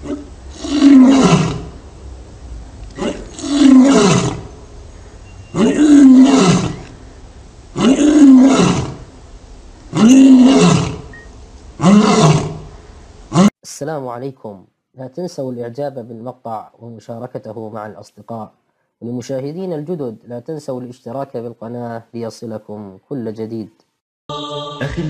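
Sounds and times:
lion roaring: 0:00.0 - 0:01.8, 0:02.9 - 0:04.6, 0:05.5 - 0:07.0, 0:07.8 - 0:09.1, 0:09.9 - 0:11.1, 0:11.8 - 0:12.7.

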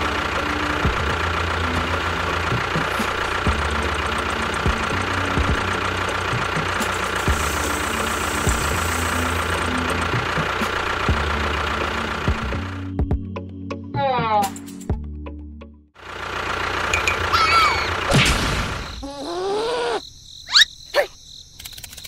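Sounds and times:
tractor engine chugging: 0:00.0 - 0:13.0, 0:16.0 - 0:19.0.

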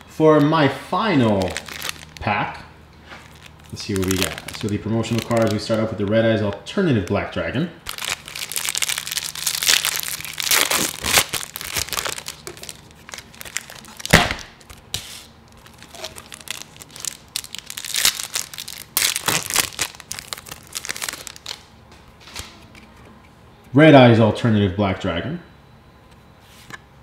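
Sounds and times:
plastic wrapper crinkling: 0:01.1 - 0:02.3, 0:03.0 - 0:21.8
plastic wrapper snapping: 0:01.2 - 0:02.2, 0:03.2 - 0:07.2, 0:07.8 - 0:21.7.

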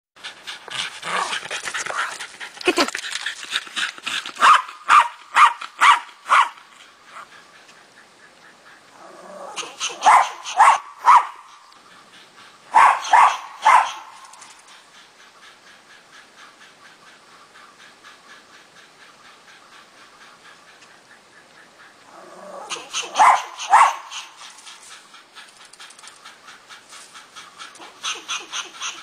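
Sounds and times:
dog barking excitedly: 0:04.4 - 0:07.3, 0:09.6 - 0:11.5, 0:12.7 - 0:14.3, 0:22.7 - 0:24.6, 0:27.7 - 0:29.0.

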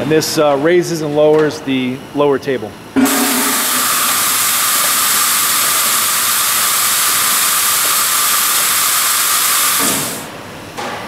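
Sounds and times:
compressed air hissing: 0:03.0 - 0:10.4.

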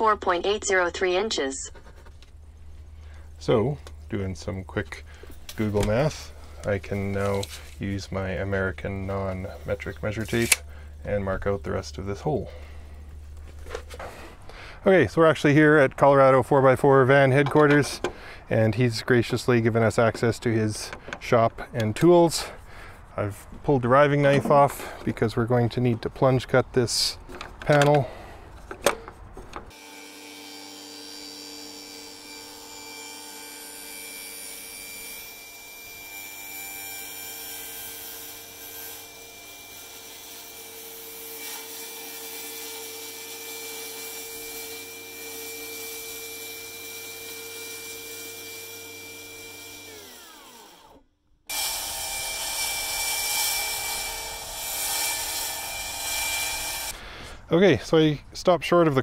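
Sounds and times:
table saw motor whine: 0:29.7 - 0:39.6, 0:44.8 - 0:56.9
saw cutting plywood: 0:29.7 - 0:56.9.

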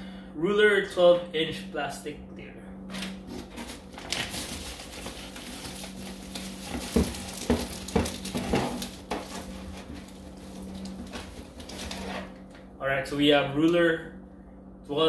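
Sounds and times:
plastic packaging crinkling: 0:03.0 - 0:12.5
items knocking together: 0:03.3 - 0:12.1.

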